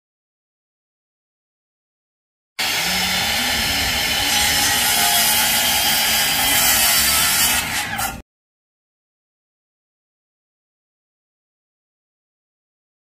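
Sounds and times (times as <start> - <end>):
reciprocating saw cutting wood: 2.6 - 8.2.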